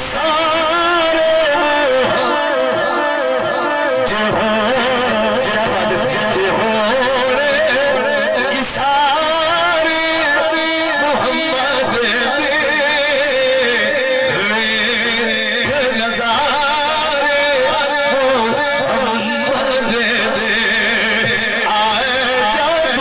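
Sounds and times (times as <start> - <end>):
man singing into microphone: 0.0 - 23.0.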